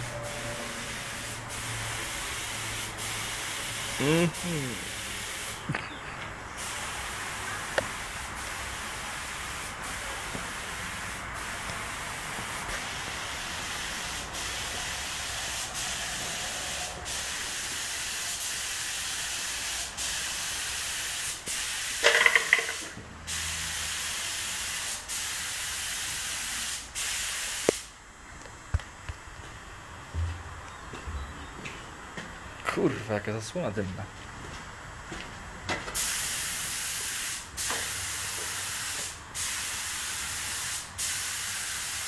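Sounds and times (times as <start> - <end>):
paint spray gun hissing: 0.4 - 5.7, 6.6 - 27.9, 36.0 - 42.0.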